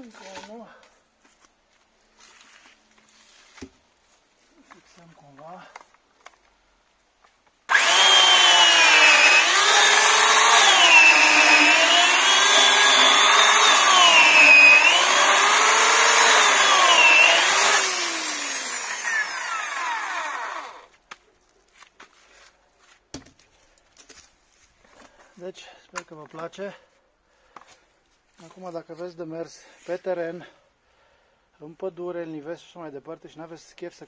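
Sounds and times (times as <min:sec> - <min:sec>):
electric chainsaw cutting log: 0:07.7 - 0:20.9.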